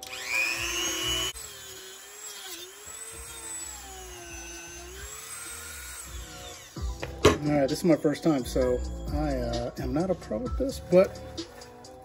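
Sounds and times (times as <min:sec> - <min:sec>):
rotary tool cutting plastic: 0:00.0 - 0:07.0.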